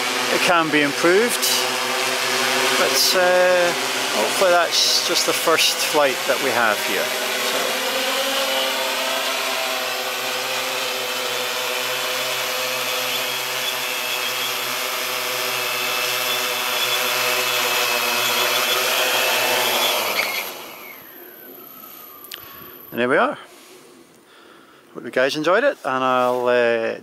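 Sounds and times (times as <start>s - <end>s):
drone propellers humming: 0.0s - 22.9s
faint high whine: 18.2s - 23.3s.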